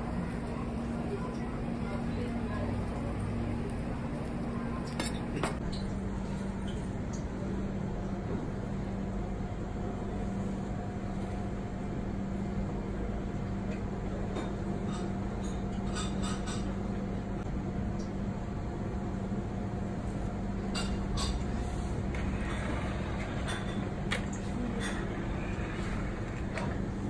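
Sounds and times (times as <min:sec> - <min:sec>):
kitchen equipment humming: 0:00.0 - 0:27.0.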